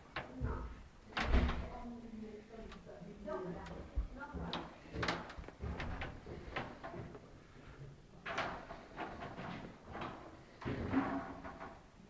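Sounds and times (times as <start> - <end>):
footsteps on wooden floorboards: 3.6 - 7.2
knocks and thuds: 4.0 - 7.1.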